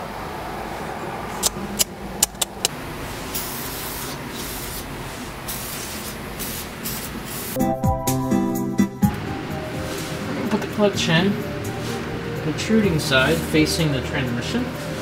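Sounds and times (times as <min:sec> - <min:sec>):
sharp clicks: 0:01.4 - 0:02.7
aerosol spray hissing bursts: 0:03.3 - 0:07.6.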